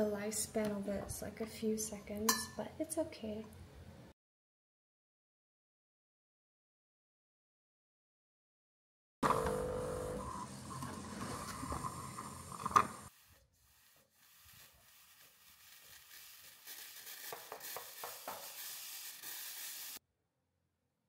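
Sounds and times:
steam wand steaming milk: 9.2 - 20.0
steam wand purge hiss: 13.1 - 20.0.

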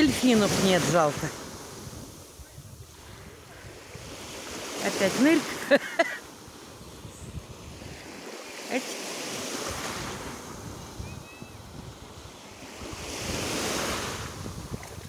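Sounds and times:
wind buffeting microphone: 0.0 - 4.7, 6.5 - 8.2, 9.6 - 15.0
small waves washing on shore: 0.0 - 15.0.

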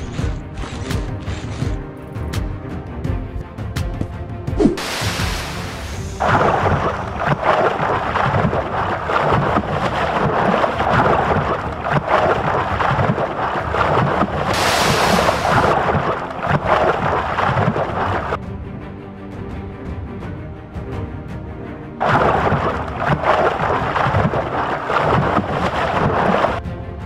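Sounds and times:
water splashing and churning: 0.0 - 1.9, 4.1 - 18.4, 21.8 - 27.0.

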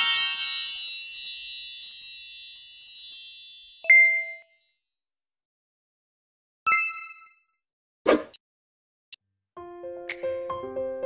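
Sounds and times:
high tinkling chimes: 0.0 - 4.8.

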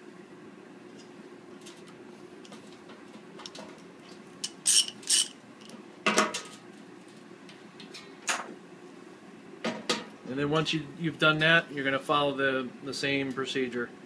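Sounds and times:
low steady hum: 0.0 - 14.0
metal fittings clanking: 4.4 - 5.3.

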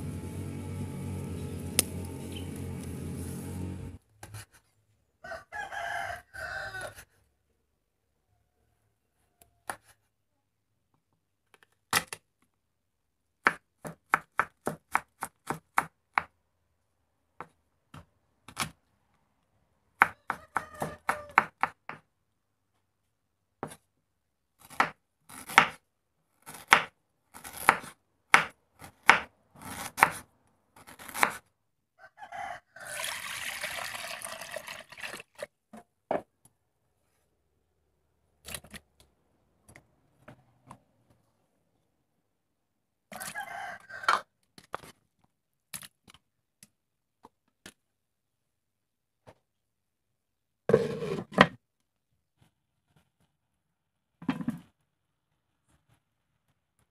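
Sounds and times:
knife chopping on wooden board: 24.7 - 25.8, 26.6 - 30.2, 30.9 - 31.4.

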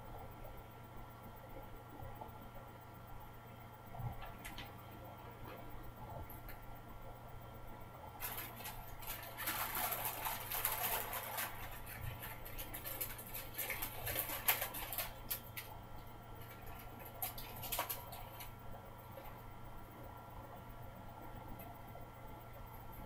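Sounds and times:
faint electrical hum: 0.0 - 23.0
paper wrapper crinkling and tearing: 8.2 - 15.7.

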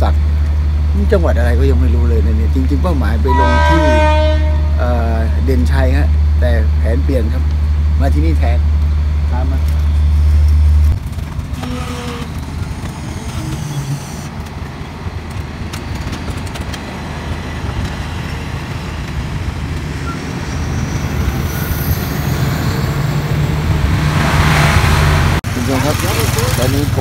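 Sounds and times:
loud low hum: 0.0 - 14.5, 18.7 - 27.0
standing train rumble: 0.0 - 27.0.

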